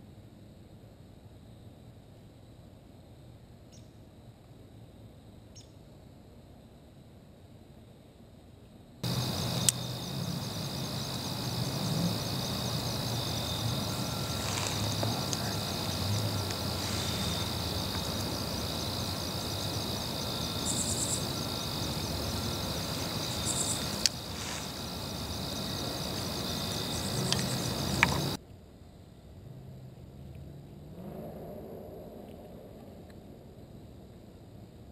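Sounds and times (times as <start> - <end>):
insects trilling: 3.6 - 4.3, 9.0 - 28.4.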